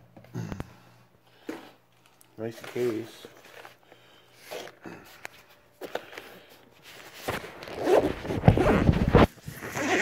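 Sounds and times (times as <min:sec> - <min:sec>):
zipper pulled open: 0:07.6 - 0:10.0.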